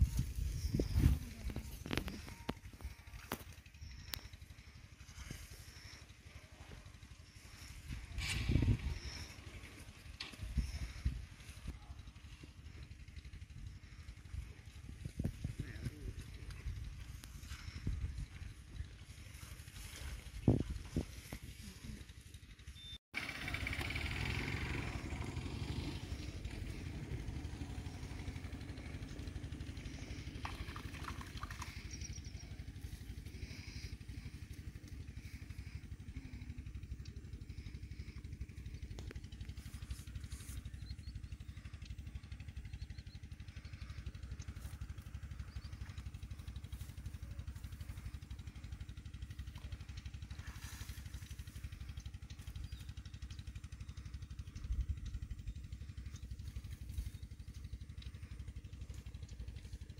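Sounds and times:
low motor drone: 0:00.0 - 0:59.9.

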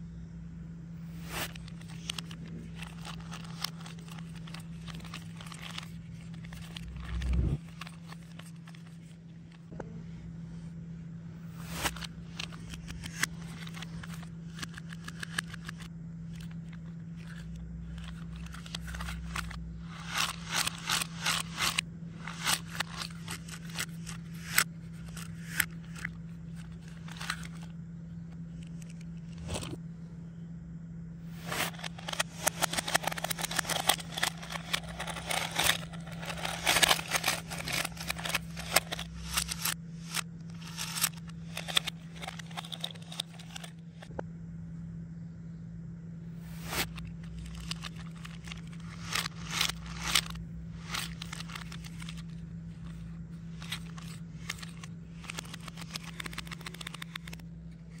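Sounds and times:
steady low hum: 0:00.0 - 0:58.0
hands rustling foam beads: 0:31.4 - 0:39.8.

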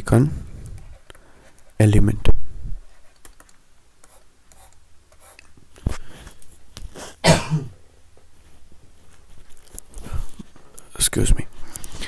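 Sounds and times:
man clearing throat with coughs: 0:07.2 - 0:07.8.

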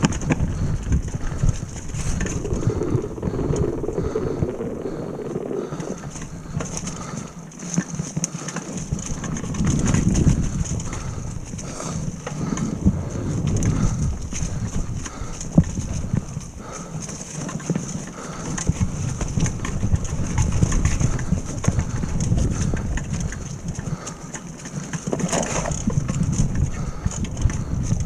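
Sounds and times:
bike knocking and rattling: 0:00.0 - 0:03.7, 0:06.0 - 0:28.0
wind on microphone: 0:00.0 - 0:07.4, 0:08.9 - 0:16.9, 0:18.1 - 0:24.1, 0:25.1 - 0:28.0
tyres rumbling over ground: 0:01.8 - 0:07.3.

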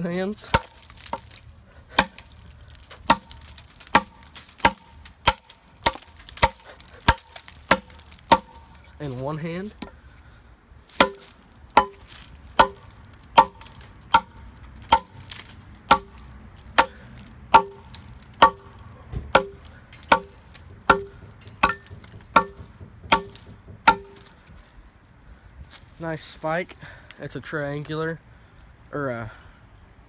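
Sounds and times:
tomahawk chopping into log: 0:00.5 - 0:08.9, 0:10.9 - 0:24.4.

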